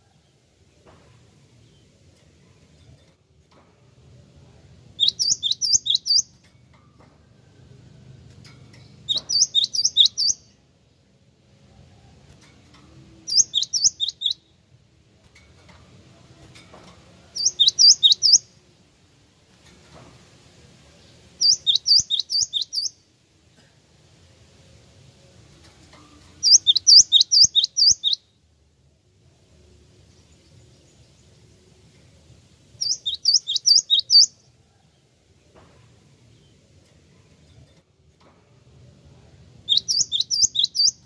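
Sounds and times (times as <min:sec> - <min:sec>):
bird calling high repeated notes: 0:05.0 - 0:06.3, 0:13.3 - 0:14.4, 0:21.4 - 0:22.9, 0:26.4 - 0:28.2, 0:32.8 - 0:34.3, 0:39.7 - 0:41.0.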